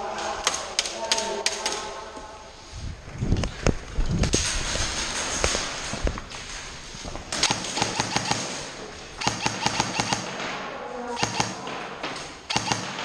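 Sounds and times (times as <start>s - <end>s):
airsoft guns firing bursts: 7.3s - 13.0s.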